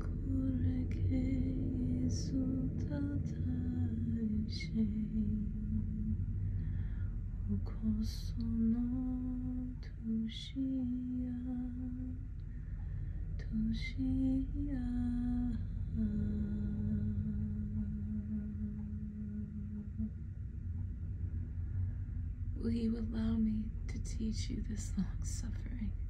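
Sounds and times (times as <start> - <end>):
woman humming: 13.4 - 20.2.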